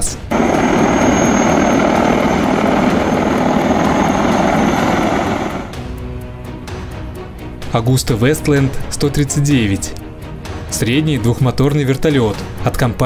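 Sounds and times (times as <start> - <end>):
helicopter flying low past: 0.3 - 5.9
high whine: 0.3 - 5.9.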